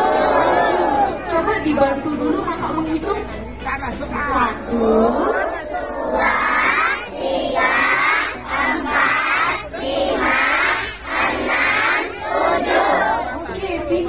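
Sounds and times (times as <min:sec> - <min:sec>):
children chanting numbers in unison: 0:00.0 - 0:01.2, 0:04.8 - 0:13.6.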